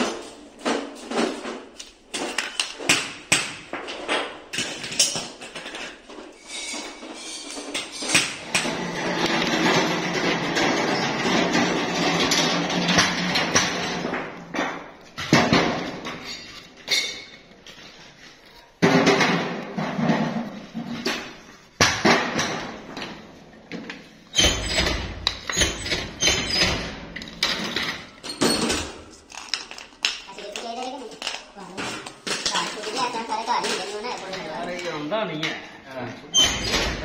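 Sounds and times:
metal parts clattering and rubbing: 3.8s - 21.7s, 23.8s - 35.1s.

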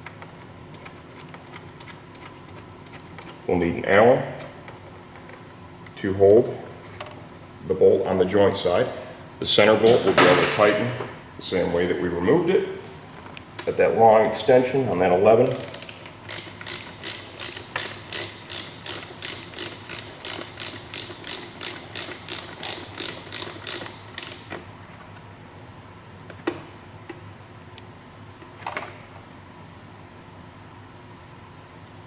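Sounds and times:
ratchet wrench clicking: 15.5s - 24.6s.

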